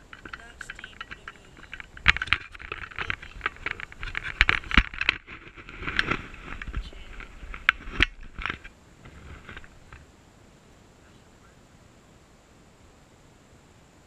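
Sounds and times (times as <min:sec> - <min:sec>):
crunching on dirt and gravel: 0:00.0 - 0:10.1.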